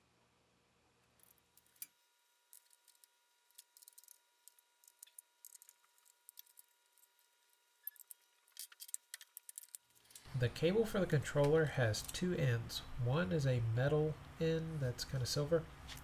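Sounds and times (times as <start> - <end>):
plastic parts clicking and tapping: 2.5 - 6.7, 7.9 - 10.3.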